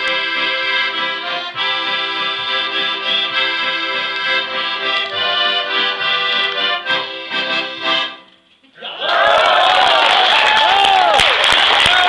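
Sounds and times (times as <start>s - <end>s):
accordions playing: 0.0s - 8.6s
keyboard: 0.0s - 8.6s.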